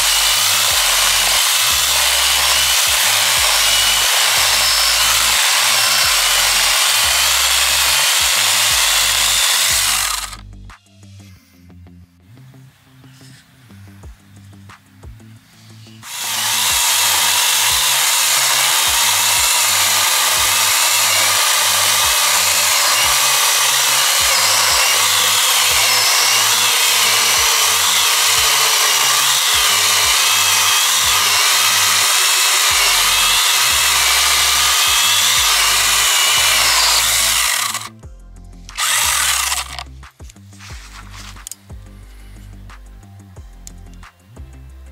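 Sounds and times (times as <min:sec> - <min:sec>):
chainsaw cutting wood: 0:00.0 - 0:10.4, 0:16.0 - 0:37.9, 0:38.7 - 0:39.8.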